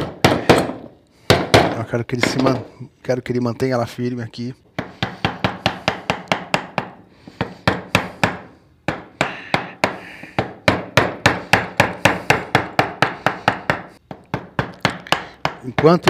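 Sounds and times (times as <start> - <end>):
mallet tapping wood chisel: 4.8 - 16.0.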